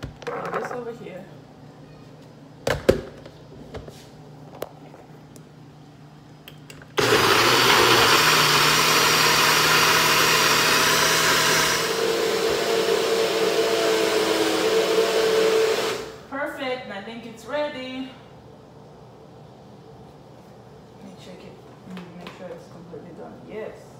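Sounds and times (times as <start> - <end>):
blender motor running: 7.0 - 16.2.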